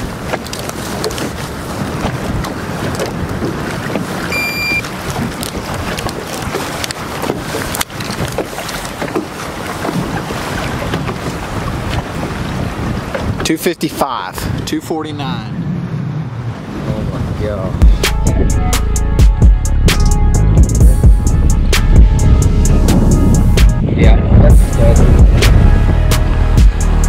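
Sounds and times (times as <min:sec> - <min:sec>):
wind rushing over microphone: 0:00.0 - 0:27.0
short high electronic beep: 0:04.3 - 0:04.8.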